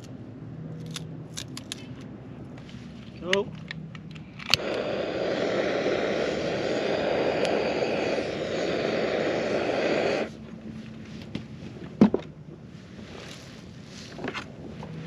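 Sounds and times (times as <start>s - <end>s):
gas torch hissing: 4.6s - 10.4s.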